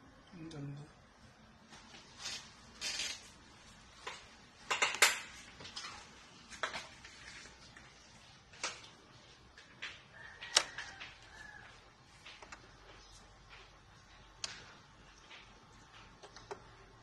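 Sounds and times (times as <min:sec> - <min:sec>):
receiver controls clicking: 0:10.4 - 0:11.3.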